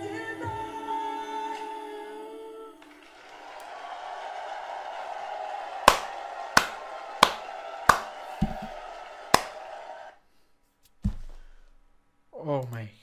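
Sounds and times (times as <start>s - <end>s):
loud hand claps: 2.8s - 10.1s
audience noise: 2.8s - 10.2s.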